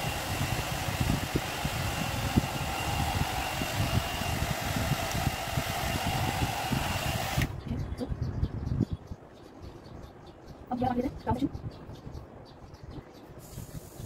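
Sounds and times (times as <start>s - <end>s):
hair dryer brush blowing air: 0.0s - 7.5s.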